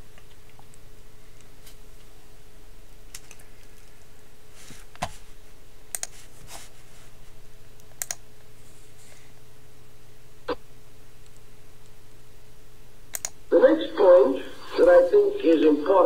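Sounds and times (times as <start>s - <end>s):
low background hum: 0.0s - 16.0s
computer mouse clicks: 3.1s - 4.0s, 5.9s - 6.2s, 7.8s - 8.2s, 13.1s - 13.4s.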